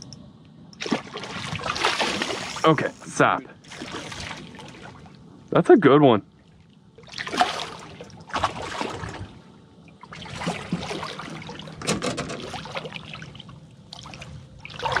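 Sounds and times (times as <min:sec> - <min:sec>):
sharp water slaps: 0:00.8 - 0:02.7, 0:07.1 - 0:09.2
fish splashing and sloshing water: 0:00.8 - 0:05.5, 0:06.3 - 0:15.0.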